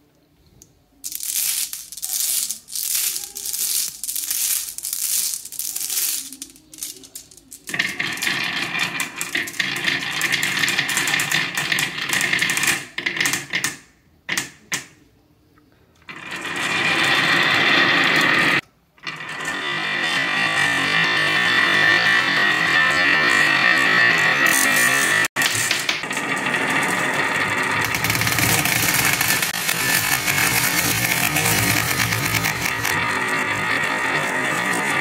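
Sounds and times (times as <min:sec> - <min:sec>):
glass marbles rattling down wooden track: 0:01.0 - 0:13.8, 0:16.1 - 0:35.0.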